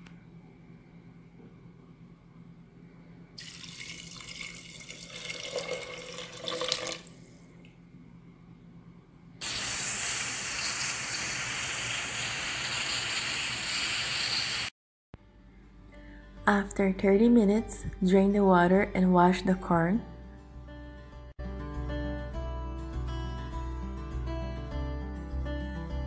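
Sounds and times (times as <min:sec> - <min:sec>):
water splashing into a pot: 0:03.4 - 0:07.1
steam hissing from valve: 0:09.4 - 0:14.7.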